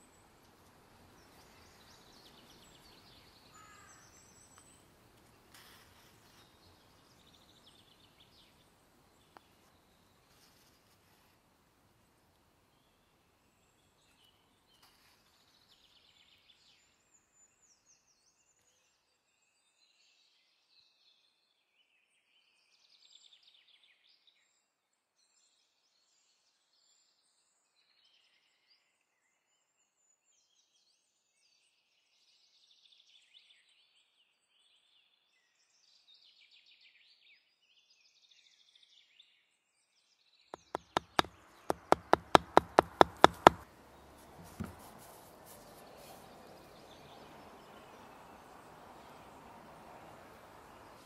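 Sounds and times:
faint songbird chirping: 0:00.0 - 0:11.4, 0:12.0 - 0:51.0
dull thump: 0:40.6 - 0:43.6, 0:44.4 - 0:44.9
sharp knocks: 0:40.6 - 0:43.6, 0:44.4 - 0:44.8.

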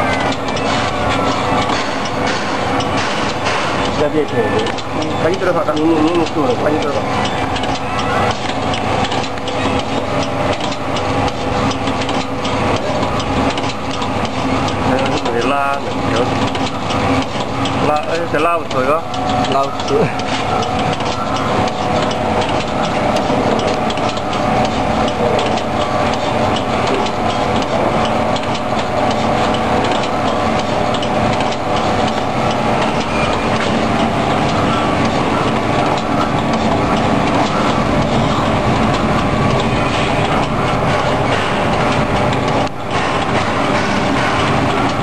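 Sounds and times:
packing machine clatter: 0:00.0 - 0:45.0
rapid ticking: 0:00.0 - 0:45.0.

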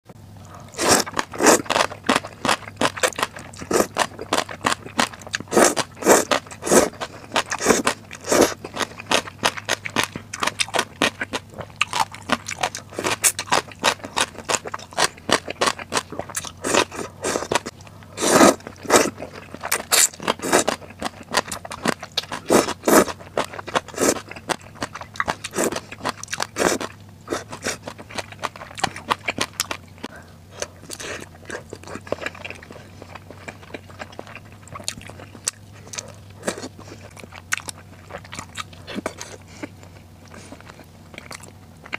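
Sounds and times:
crisp crunching chewing: 0:00.4 - 0:41.9
noodles slurped: 0:00.7 - 0:09.3, 0:16.1 - 0:29.4.

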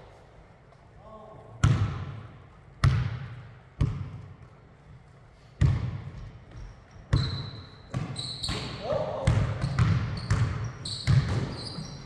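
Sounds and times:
basketball bouncing on wooden floor: 0:02.8 - 0:04.5, 0:05.6 - 0:12.0.

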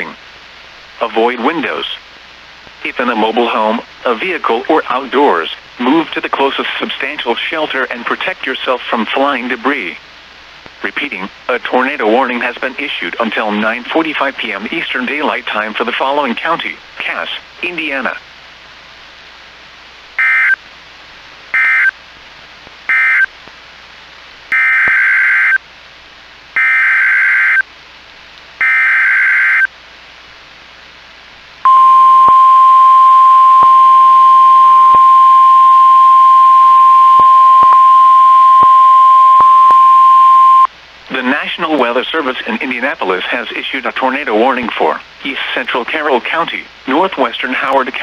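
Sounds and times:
faint radio hiss: 0:00.0 - 0:48.0
data burst tones: 0:31.7 - 0:40.7
steady warning alarm tone: 0:31.7 - 0:40.7.

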